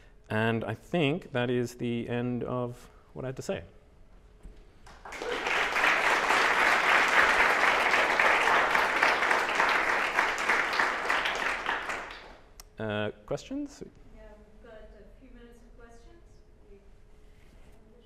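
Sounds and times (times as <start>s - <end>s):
audience applauding: 4.9s - 12.4s.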